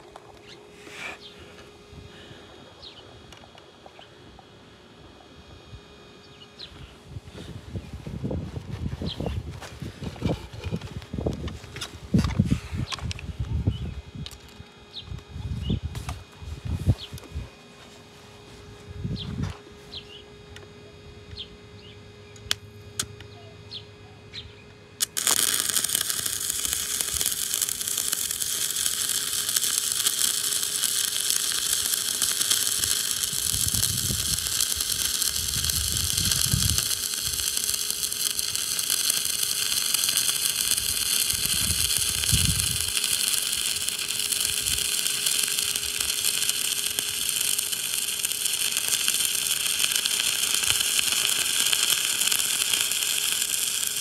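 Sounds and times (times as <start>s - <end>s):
welding arc crackle and hiss: 0.0s - 4.0s, 6.6s - 13.5s, 14.2s - 20.1s, 25.0s - 54.0s.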